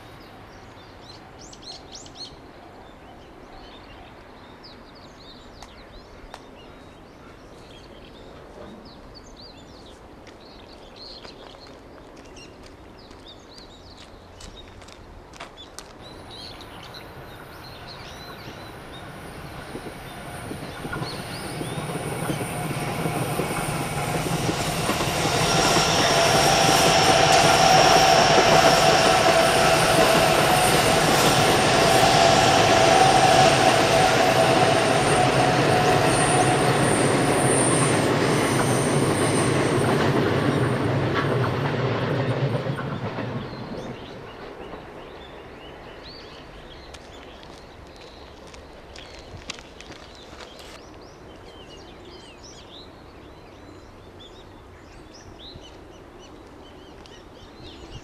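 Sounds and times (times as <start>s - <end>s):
train wheels rolling on rails: 7.5s - 53.0s
train high whine: 16.0s - 58.0s.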